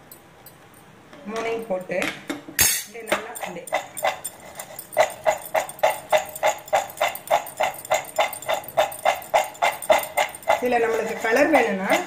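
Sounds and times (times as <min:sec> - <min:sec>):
nuts rattling in steel bowl: 0:02.9 - 0:12.0.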